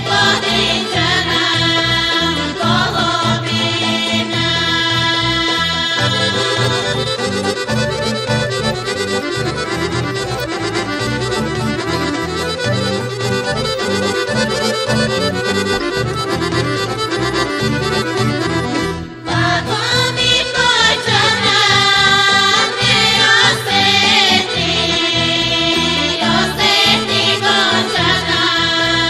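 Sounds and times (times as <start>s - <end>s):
accordion folk music: 0.0s - 29.0s
rhythmic bass: 0.0s - 29.0s.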